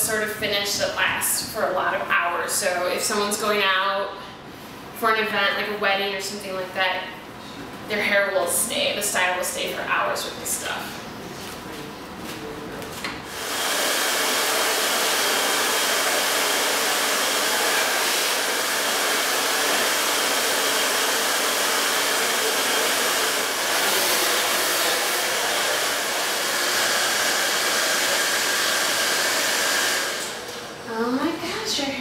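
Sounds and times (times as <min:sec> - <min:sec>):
hair dryer blowing: 0:13.2 - 0:30.8.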